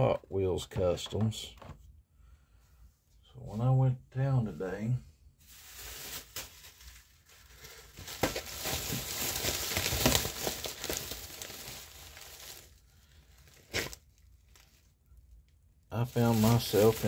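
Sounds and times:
plastic crinkling and rustling: 0:05.4 - 0:15.0, 0:16.0 - 0:17.0.

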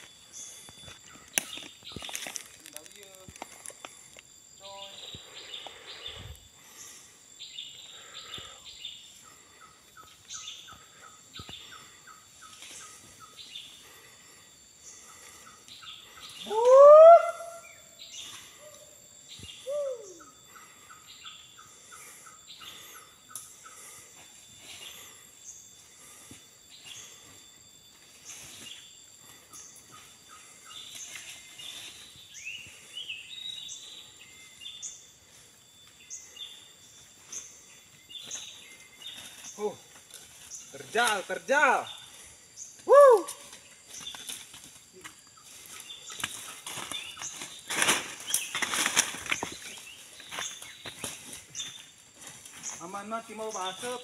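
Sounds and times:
forest birds chirping: 0:00.0 - 0:54.0
high insect drone: 0:00.0 - 0:54.0.

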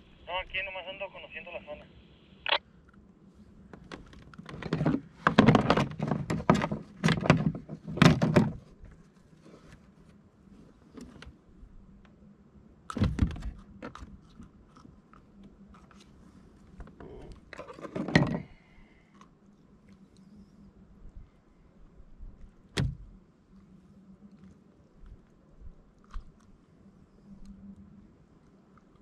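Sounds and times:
knocks and thuds on plastic kayak: 0:04.5 - 0:08.7.

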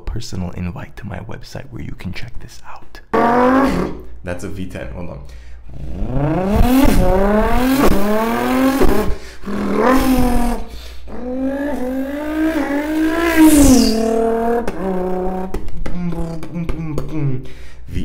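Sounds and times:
man imitating engine revving: 0:03.1 - 0:04.1, 0:05.6 - 0:18.0
high falling whistle: 0:12.0 - 0:14.4.

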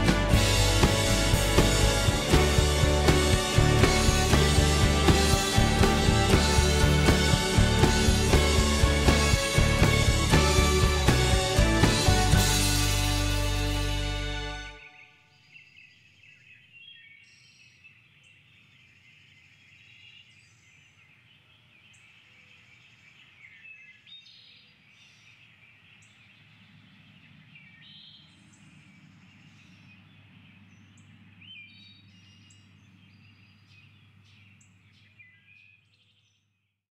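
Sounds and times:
small birds chirping: 0:14.8 - 0:36.5.

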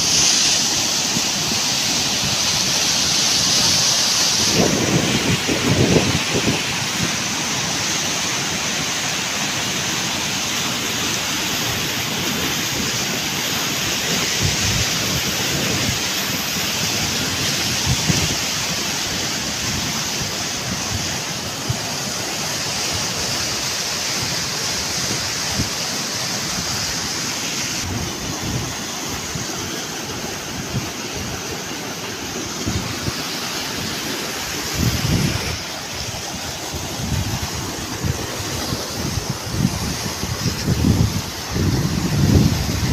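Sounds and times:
flood water rushing over rocks: 0:00.0 - 0:42.9
wind buffeting microphone: 0:04.4 - 0:07.2, 0:34.6 - 0:42.9.

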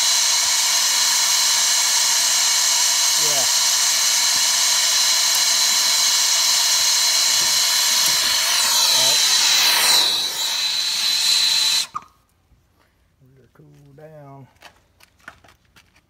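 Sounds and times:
torch flame hissing: 0:00.0 - 0:11.9.

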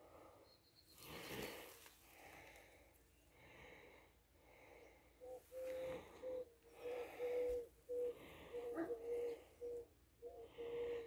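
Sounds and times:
dove cooing: 0:05.2 - 0:11.0.

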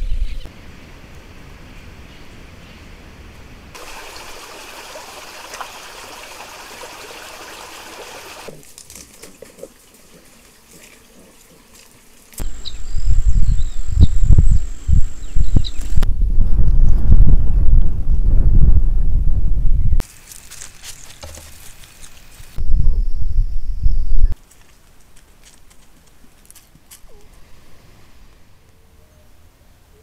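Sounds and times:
water trickling over rocks: 0:03.8 - 0:12.4
wind buffeting microphone: 0:12.4 - 0:20.0, 0:22.6 - 0:24.4.

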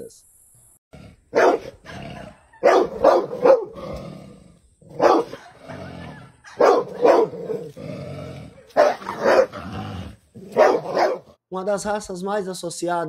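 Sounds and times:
dog barking: 0:01.3 - 0:03.8, 0:04.9 - 0:07.7, 0:08.6 - 0:09.6, 0:10.4 - 0:11.4
dog's low rough growl: 0:03.2 - 0:06.2, 0:06.9 - 0:11.2.

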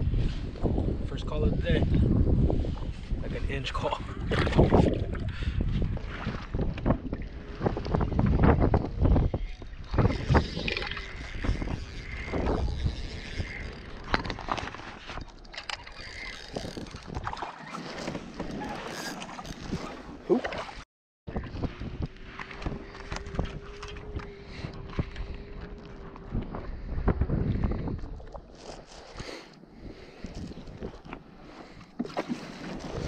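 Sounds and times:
wind buffeting microphone: 0:00.0 - 0:19.9, 0:21.3 - 0:33.0
water slapping against hull: 0:04.0 - 0:29.2, 0:29.8 - 0:33.0
knocks and splashes: 0:04.2 - 0:09.3, 0:14.0 - 0:23.9, 0:31.9 - 0:33.0.

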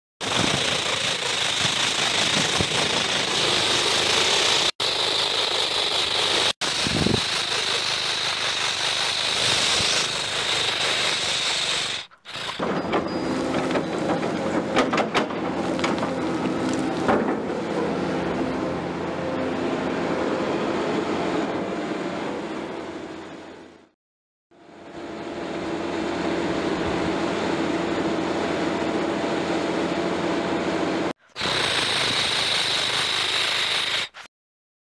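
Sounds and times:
truck engine rattling: 0:00.2 - 0:18.5.

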